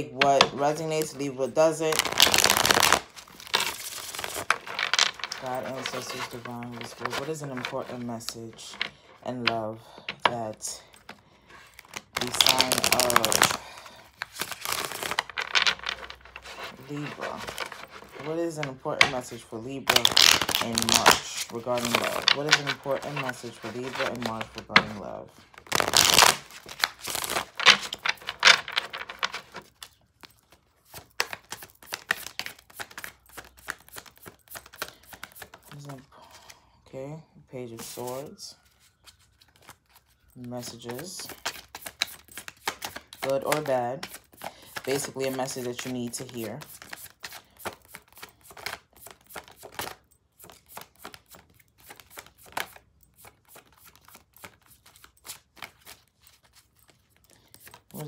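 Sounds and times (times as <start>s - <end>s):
cards swishing while shuffled: 1.8s - 8.5s, 11.7s - 13.6s, 14.2s - 25.0s, 30.8s - 35.8s, 39.0s - 58.0s.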